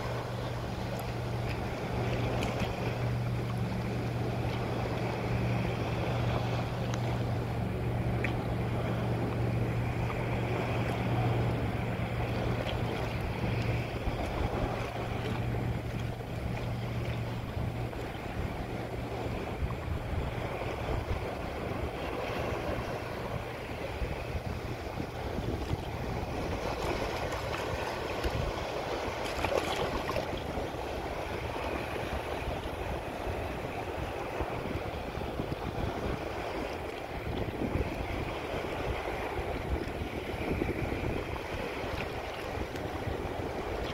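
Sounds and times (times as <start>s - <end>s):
low steady hum: 0.0s - 43.9s
wind buffeting microphone: 0.0s - 43.9s
water washing and splashing: 24.5s - 33.4s.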